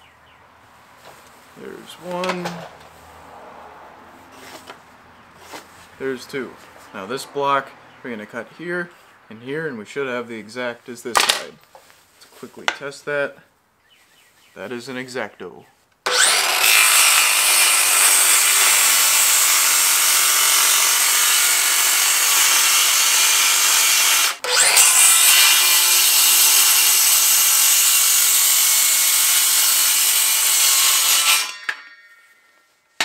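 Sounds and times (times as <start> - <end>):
circular saw cutting wood: 16.0 - 32.4.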